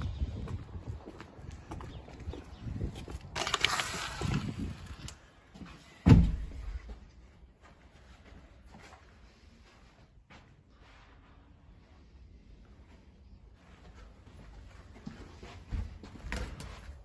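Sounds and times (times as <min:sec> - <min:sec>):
heavy thump: 0:06.1 - 0:06.6.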